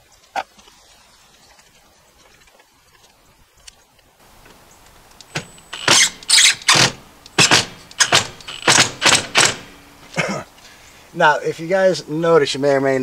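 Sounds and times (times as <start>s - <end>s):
drill clutch clicking: 5.2s - 9.7s
cordless drill running in bursts: 5.4s - 9.7s.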